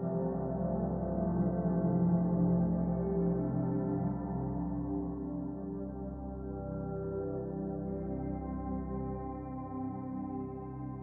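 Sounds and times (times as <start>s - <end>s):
soft ambient synth music: 0.0s - 11.0s.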